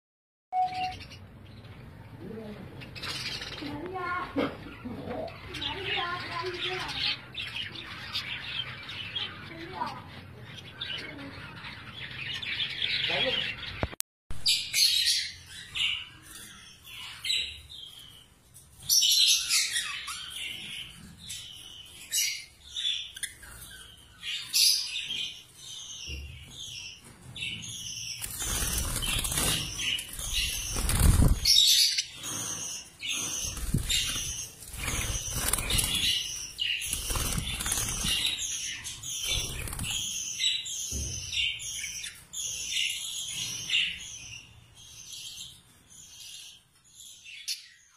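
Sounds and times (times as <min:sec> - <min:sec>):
budgerigars chattering: 0:27.9 - 0:44.4.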